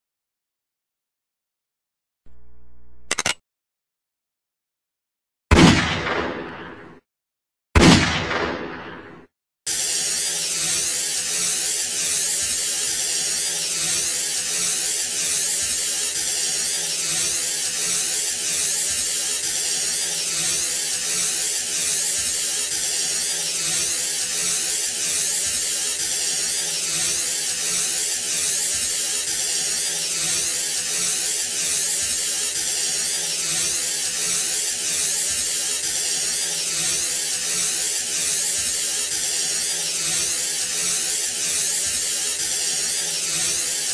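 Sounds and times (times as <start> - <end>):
aerosol spray can hissing: 9.7 - 43.9.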